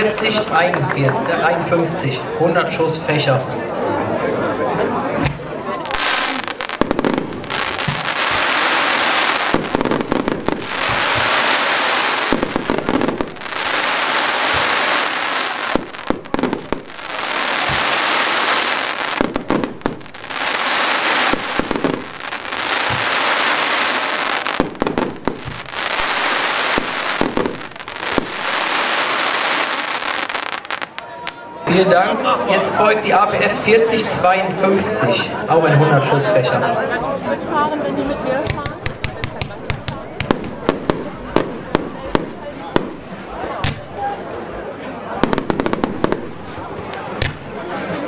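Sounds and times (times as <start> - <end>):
crackle of bursting fireworks: 5.2 - 31.4, 38.5 - 48.0
firework launch reports: 5.2 - 35.5, 38.4 - 48.0.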